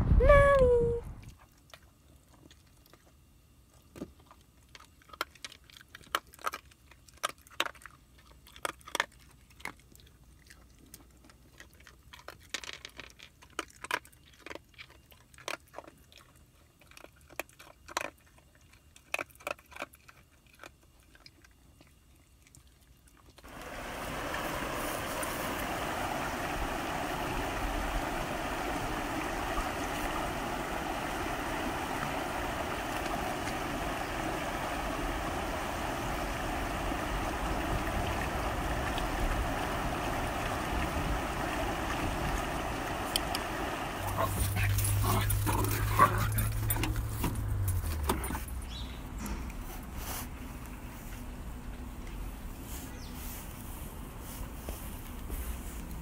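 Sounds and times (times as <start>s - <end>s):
dog eating from metal bowl: 1.4s - 23.6s, 43.9s - 49.6s
creek running over rocks: 23.4s - 48.8s.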